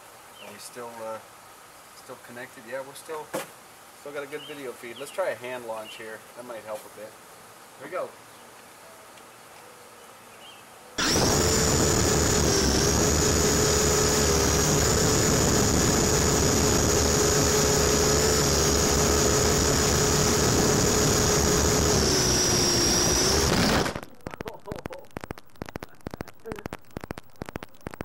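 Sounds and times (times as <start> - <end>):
rc helicopter rotors whining: 11.0 - 28.0.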